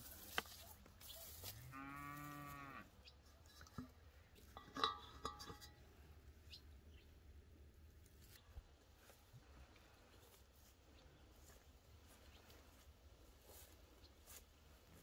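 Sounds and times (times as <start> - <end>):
cow mooing: 1.6 - 2.9.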